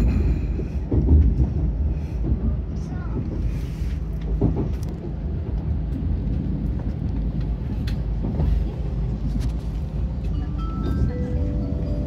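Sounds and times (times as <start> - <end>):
train rumble from inside cabin: 0.0 - 12.0.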